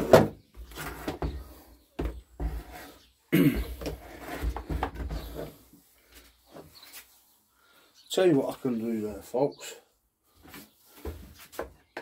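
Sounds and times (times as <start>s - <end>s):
man coughing: 3.3s - 3.8s.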